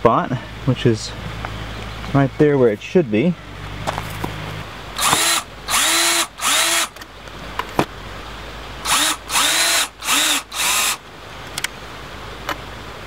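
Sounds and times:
power drill driving screws into wood: 0:05.0 - 0:07.0, 0:08.8 - 0:11.0.

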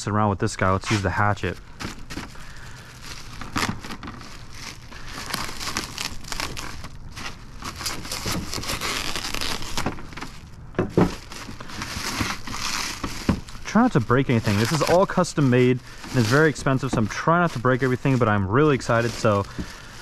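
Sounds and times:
plastic wrap crinkling and tearing: 0:00.8 - 0:20.0
plastic wrap snap: 0:07.7 - 0:10.3.

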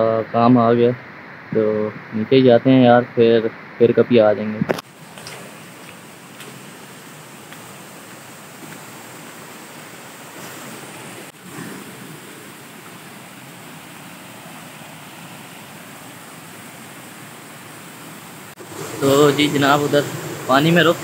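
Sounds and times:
stream water rushing: 0:04.8 - 0:21.0.

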